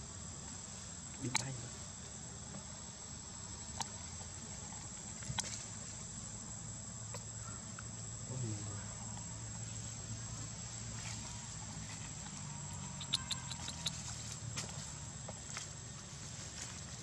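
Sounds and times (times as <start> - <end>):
insects trilling: 0.0 - 17.0
faint clicks: 13.0 - 14.1.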